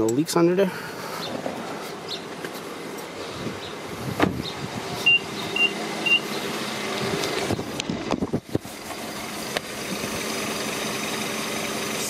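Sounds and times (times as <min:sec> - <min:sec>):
car engine idling: 0:00.7 - 0:12.0
short high beeps: 0:05.1 - 0:06.2.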